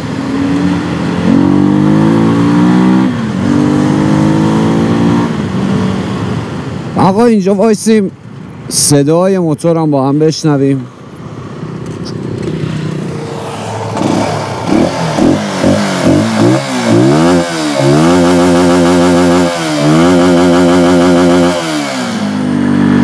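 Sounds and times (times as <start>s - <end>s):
motorcycle engine revving: 0.0s - 6.3s, 11.8s - 23.0s.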